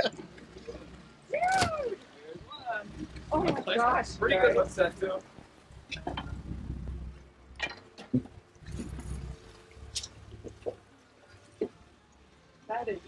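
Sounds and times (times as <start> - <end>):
wind buffeting microphone: 0.7 - 10.8
knocks and clicks on boat deck: 7.6 - 9.1.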